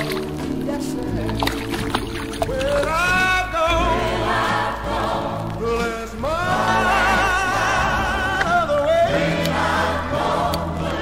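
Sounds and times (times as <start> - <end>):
band accompaniment: 0.0 - 11.0
person singing with vibrato: 2.4 - 11.0.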